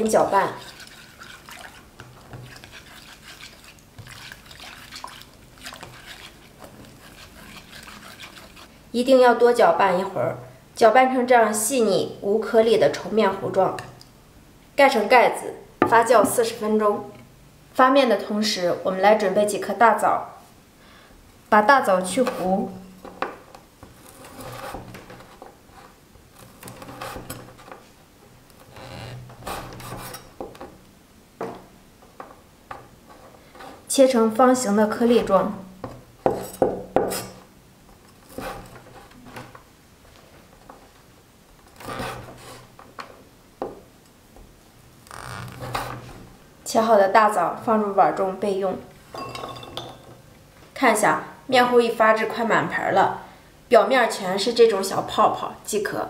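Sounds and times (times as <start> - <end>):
chopsticks swishing batter in bowl: 0.0 - 8.8.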